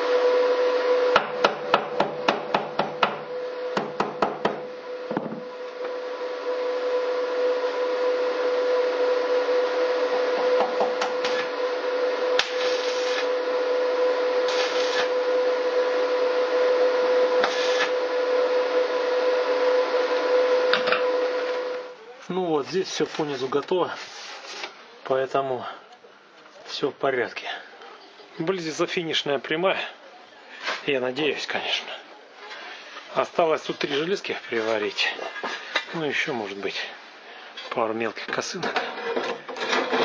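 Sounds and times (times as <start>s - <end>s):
arc welding hiss: 12.4s - 13.4s, 14.4s - 15.2s, 17.4s - 18.0s.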